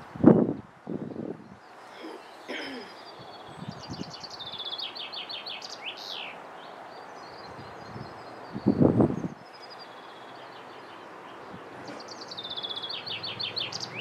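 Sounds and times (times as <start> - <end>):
steady background hiss: 0.0 - 14.0
small songbird singing: 0.2 - 14.0.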